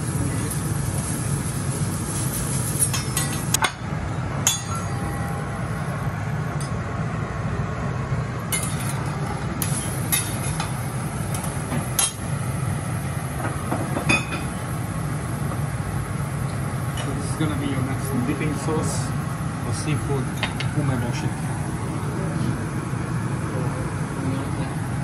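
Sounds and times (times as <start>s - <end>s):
low steady hum: 0.0s - 25.0s
spatula clinking on steel griddle: 8.5s - 9.0s.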